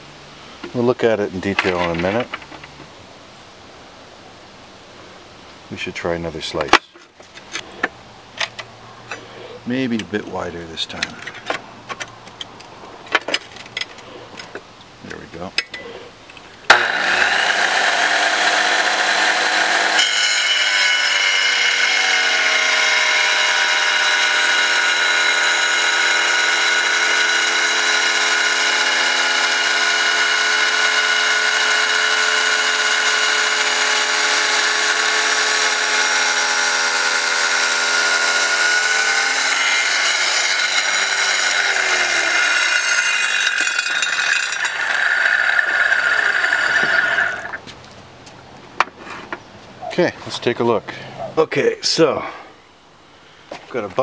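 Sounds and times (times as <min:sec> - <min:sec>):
wet tile saw cutting rock: 0:16.7 - 0:47.6.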